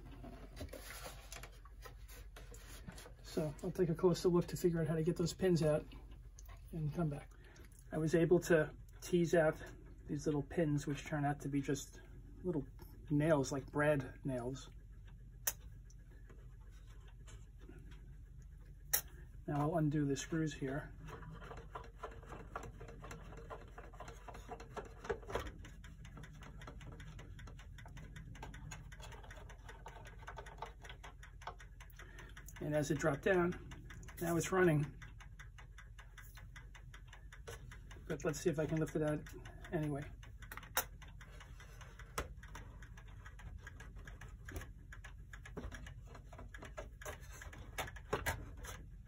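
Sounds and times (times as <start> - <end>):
clock ticking: 21.8 - 48.8.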